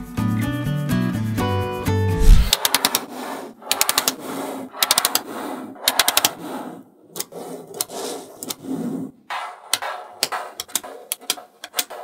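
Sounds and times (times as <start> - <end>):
balls sliding on table: 2.2 - 12.0
magnetic balls clicking together: 9.7 - 12.0.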